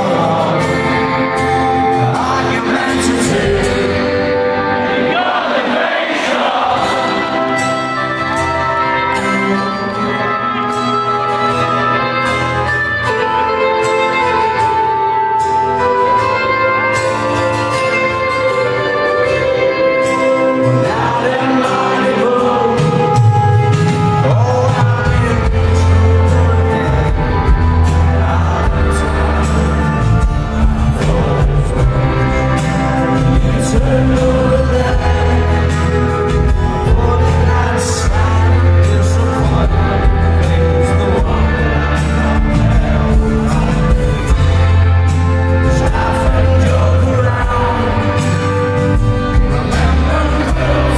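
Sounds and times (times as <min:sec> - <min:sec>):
person singing: 0:00.0 - 0:10.7, 0:13.0 - 0:50.9
strummed acoustic guitar: 0:00.0 - 0:50.9
deep bass line: 0:23.6 - 0:50.9.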